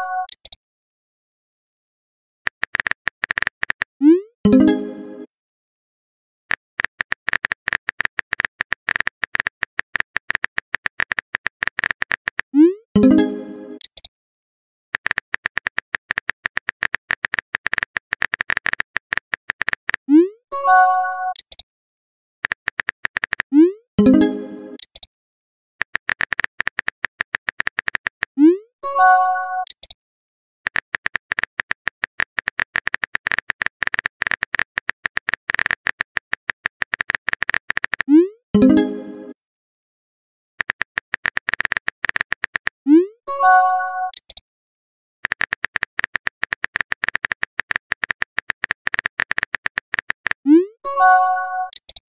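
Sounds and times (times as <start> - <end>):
phone keyboard typing clicks: 0.2 - 0.6, 2.5 - 4.0, 6.5 - 12.5, 13.8 - 14.1, 15.0 - 20.0, 21.3 - 21.6, 22.4 - 24.2, 24.8 - 25.1, 25.8 - 28.4, 29.6 - 30.0, 30.7 - 38.1, 40.6 - 42.8, 44.0 - 44.4, 45.2 - 52.0.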